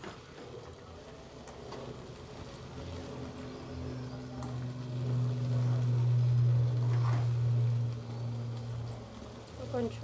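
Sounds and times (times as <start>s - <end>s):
low mechanical hum: 0.0s - 10.0s.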